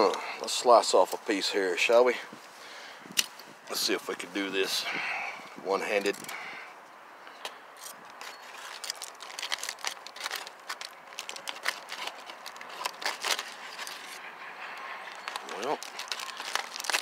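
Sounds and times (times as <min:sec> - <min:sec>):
foil crinkling and crackling: 0:08.2 - 0:14.2, 0:15.1 - 0:17.0.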